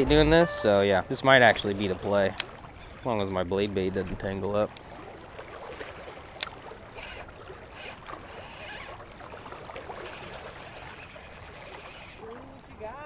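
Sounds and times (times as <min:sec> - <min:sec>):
thin high whine: 0:00.0 - 0:01.0
water lapping on rocks: 0:01.0 - 0:13.0
reel click: 0:02.3 - 0:02.5, 0:06.4 - 0:09.0, 0:09.9 - 0:12.4
fishing reel cranking: 0:06.4 - 0:09.0, 0:09.9 - 0:12.3.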